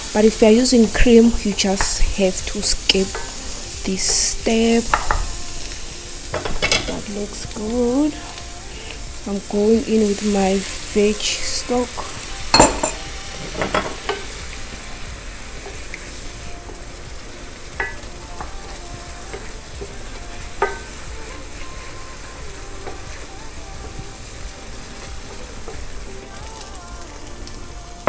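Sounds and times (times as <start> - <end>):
sauce sizzling in a frying pan: 0.0 - 28.0
utensil knocking against pan: 4.9 - 5.3, 12.0 - 14.2.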